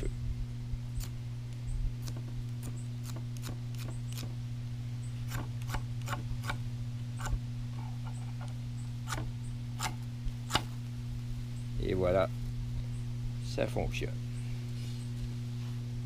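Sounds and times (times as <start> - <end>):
steady low hum: 0.0 - 16.0
fire-starter rod rasping: 2.0 - 4.4, 5.2 - 10.9.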